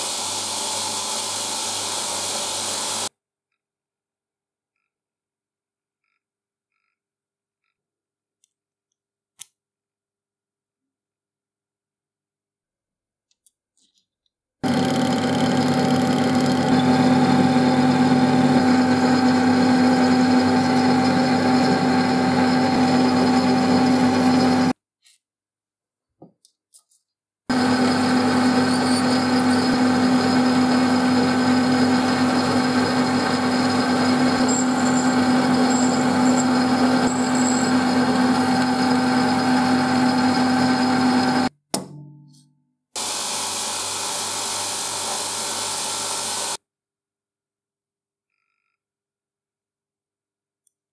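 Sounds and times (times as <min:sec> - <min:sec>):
metal lathe humming and whining: 0:14.6 - 0:24.7, 0:27.5 - 0:41.5.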